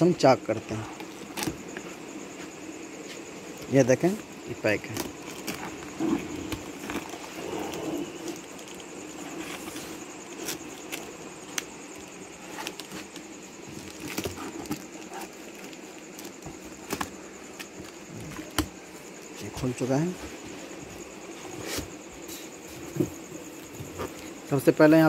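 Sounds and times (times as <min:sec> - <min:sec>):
cardboard clicks and crackles: 0:04.7 - 0:18.8.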